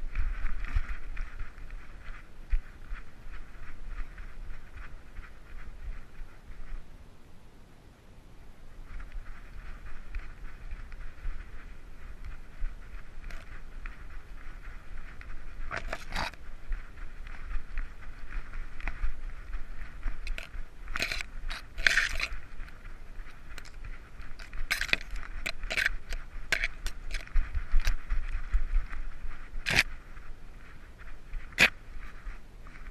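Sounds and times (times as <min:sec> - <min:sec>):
camera handling rubbing noise: 0:08.8 - 0:32.9.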